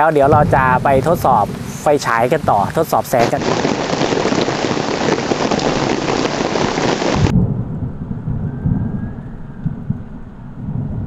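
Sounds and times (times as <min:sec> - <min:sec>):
heavy rain falling: 0:00.0 - 0:07.4
low thunder rumble: 0:00.0 - 0:11.0.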